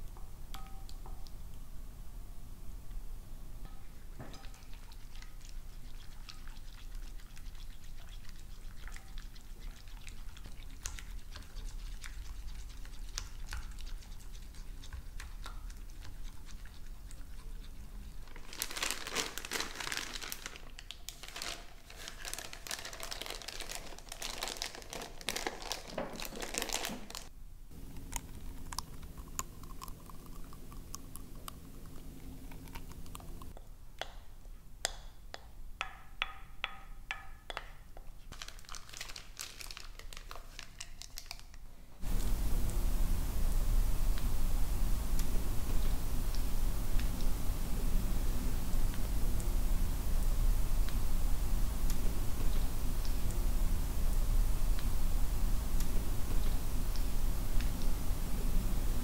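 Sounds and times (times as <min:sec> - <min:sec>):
steady low hum: 0:00.0 - 0:18.4, 0:27.3 - 0:34.0, 0:42.0 - 0:59.0
crinkling and rustling: 0:18.1 - 0:27.3, 0:38.3 - 0:42.8.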